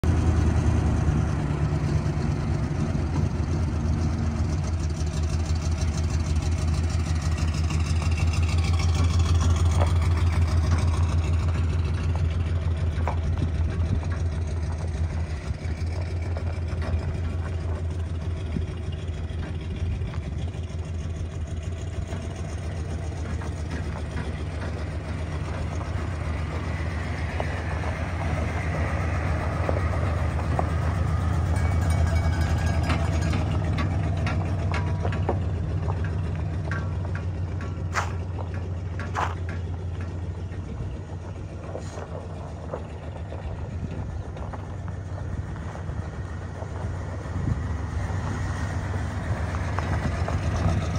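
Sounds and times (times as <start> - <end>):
pickup truck engine running: 0.0 - 50.9.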